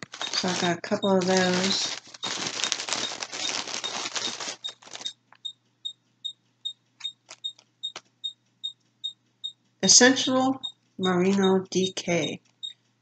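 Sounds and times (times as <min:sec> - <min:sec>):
packaging crinkling and rustling: 0:00.0 - 0:05.2.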